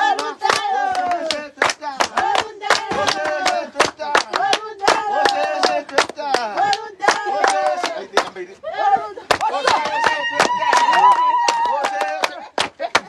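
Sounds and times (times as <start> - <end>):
hands clapping: 0.0 - 8.4, 9.3 - 13.0
high voices singing: 0.0 - 9.9.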